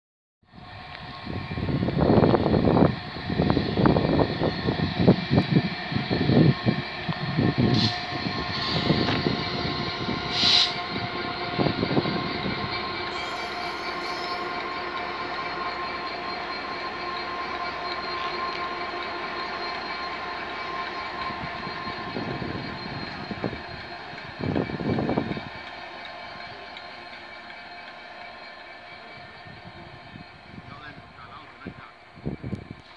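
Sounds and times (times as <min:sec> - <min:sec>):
diesel locomotive engine rumbling: 0:00.5 - 0:32.9
wheels squealing on rails: 0:00.5 - 0:32.9.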